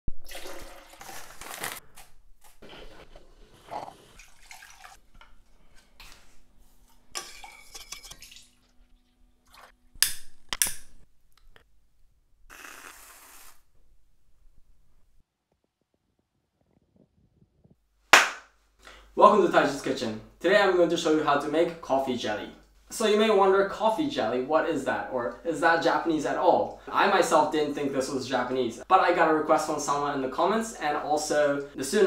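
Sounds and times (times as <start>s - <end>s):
liquid pouring: 0.1s - 1.8s, 3.9s - 5.0s, 7.2s - 9.8s
dishes and glass handled: 6.9s - 8.5s
short hiss: 12.5s - 13.8s.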